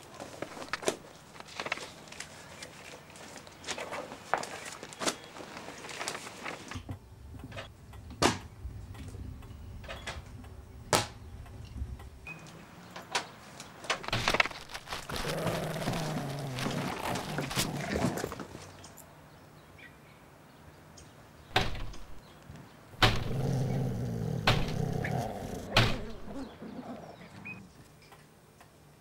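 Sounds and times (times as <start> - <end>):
newspapers rustling: 0.0 - 6.8, 13.9 - 18.7.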